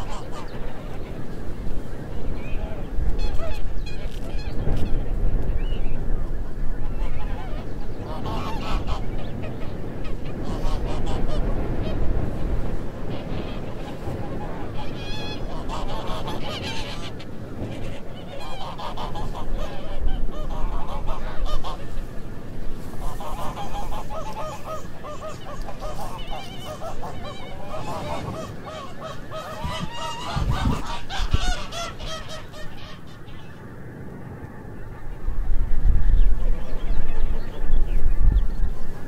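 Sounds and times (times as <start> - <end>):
geese honking: 0.0 - 5.4, 6.0 - 22.2, 22.8 - 34.0.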